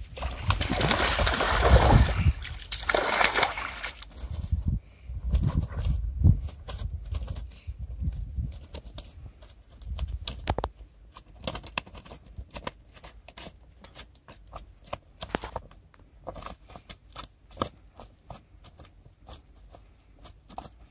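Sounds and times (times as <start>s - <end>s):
fish slapping on grass: 0.0s - 4.1s.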